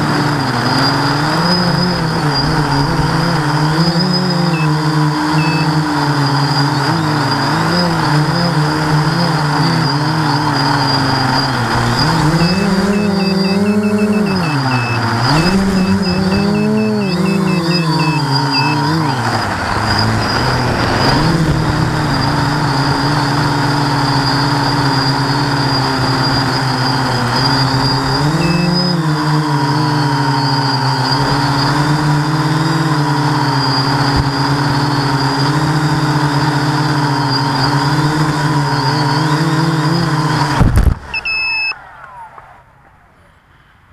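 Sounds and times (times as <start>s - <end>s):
drone motors buzzing: 0.0s - 42.4s
short electronic beeps: 1.3s - 5.8s, 8.4s - 26.6s, 27.4s - 29.1s, 41.1s - 41.8s
drone landing thump: 19.4s - 23.4s.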